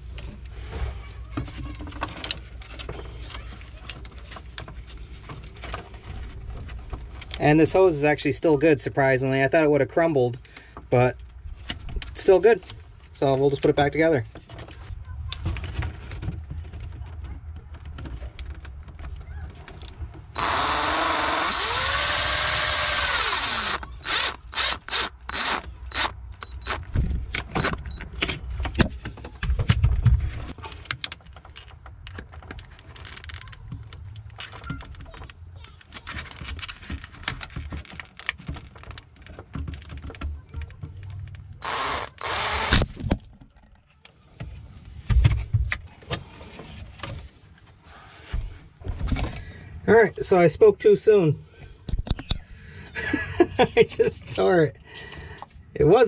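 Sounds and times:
cordless drill running: 20.4s - 26.8s, 41.6s - 42.8s.

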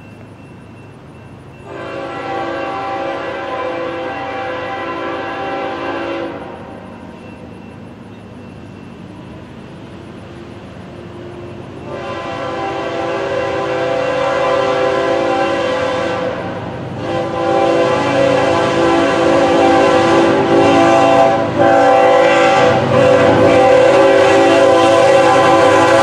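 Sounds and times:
locomotive air horn: 1.6s - 6.8s, 11.8s - 26.0s.

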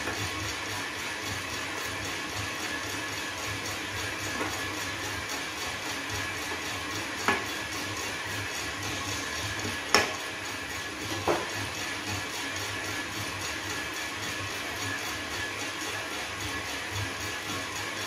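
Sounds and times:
coffee beans tumbling in drum: 0.0s - 18.0s.

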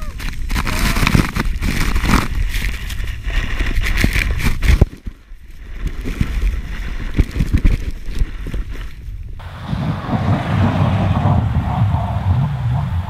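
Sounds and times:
wind buffeting microphone: 5.7s - 13.0s
heavy low rumble: 9.2s - 13.0s.

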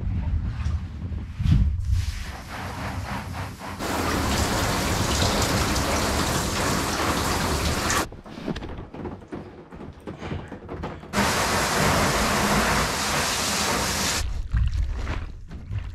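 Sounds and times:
water spray hitting plastic walls: 3.8s - 8.1s, 10.8s - 14.2s.

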